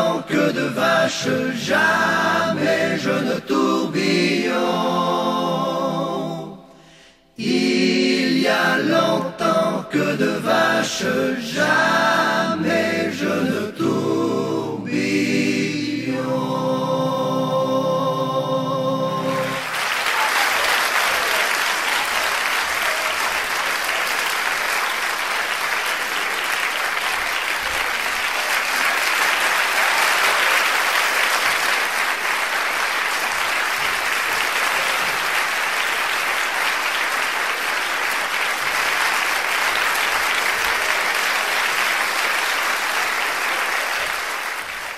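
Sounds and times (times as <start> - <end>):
audience applause: 19.2 - 44.9.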